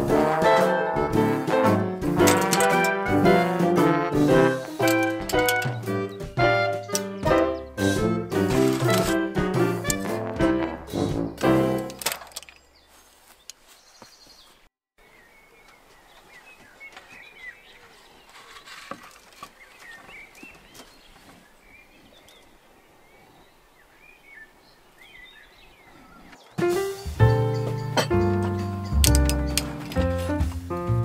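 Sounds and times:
background music: 0.0s - 12.2s, 26.6s - 31.0s
small birds chirping: 4.6s - 10.2s, 12.4s - 30.9s.

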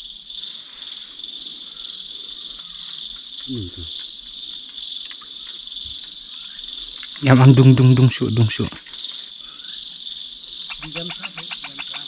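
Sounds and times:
insects chirring: 0.0s - 12.0s
brief low voice sound: 3.5s - 3.9s.

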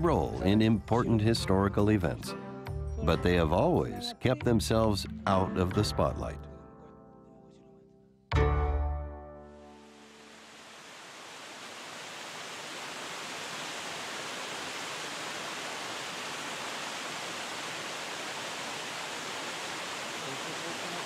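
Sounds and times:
stream rushing over stones: 9.8s - 21.0s.

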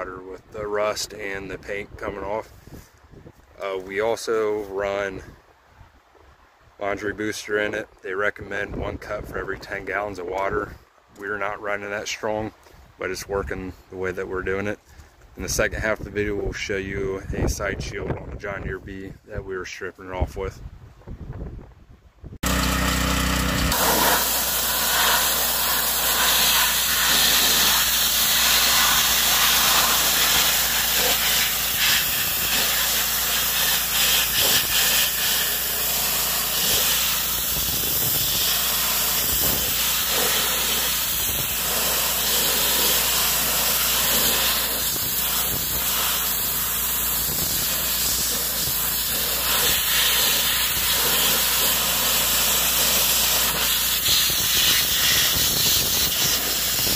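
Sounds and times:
pressure washer spraying metal: 22.4s - 56.9s.

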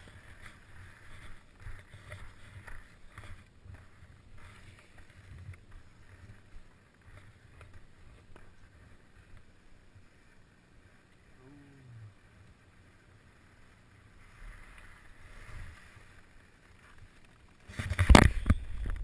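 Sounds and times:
faint ticks: 0.0s - 15.0s
skis sliding on snow: 0.0s - 19.0s
wind rumble on microphone: 17.8s - 19.0s.

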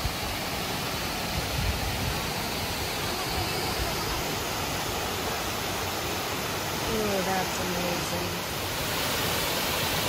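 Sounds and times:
creek rushing over rocks: 0.0s - 10.0s.

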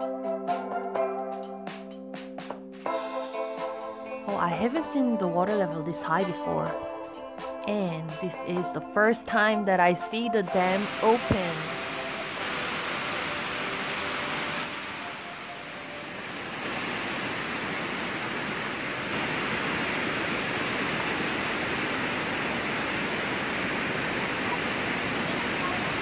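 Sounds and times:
water rushing down spillway: 10.4s - 26.0s.

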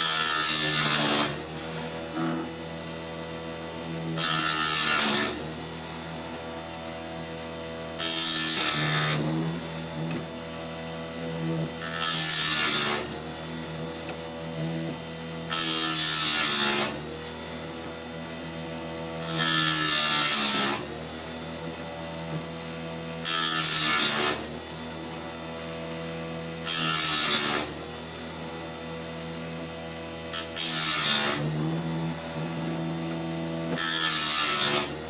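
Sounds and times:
harsh high grinding: 0.0s - 2.9s, 3.7s - 5.5s, 8.0s - 10.3s, 11.8s - 14.2s, 15.5s - 17.0s, 19.2s - 20.9s, 23.2s - 24.5s, 26.6s - 27.8s, 30.3s - 35.0s
sharpener motor hum: 0.0s - 35.0s.

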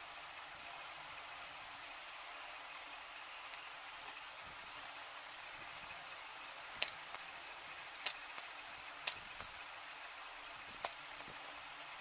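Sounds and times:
faint steady hiss: 0.0s - 12.0s
paired sharp small clicks: 6.7s - 7.3s, 8.0s - 9.6s, 10.8s - 12.0s.

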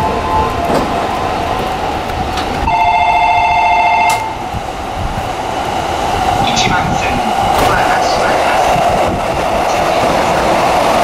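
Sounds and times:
train rumbling past: 0.0s - 11.0s
two-note train horn: 2.7s - 4.4s.

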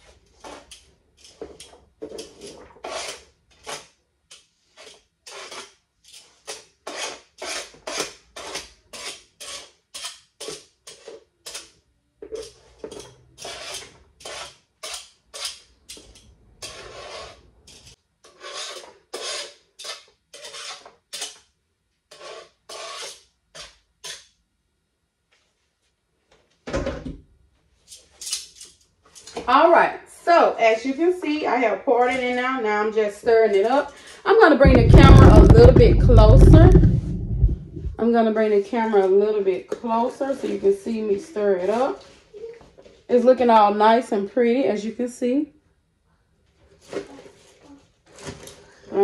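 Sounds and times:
utensil scraping cutting board: 2.2s - 4.0s, 4.7s - 9.8s, 16.6s - 20.9s, 22.1s - 24.2s, 34.6s - 37.9s
thump: 34.6s - 38.0s.

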